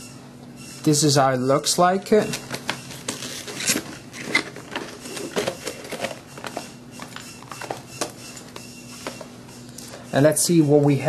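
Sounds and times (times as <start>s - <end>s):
plastic packaging clicks and rustles: 2.2s - 9.3s.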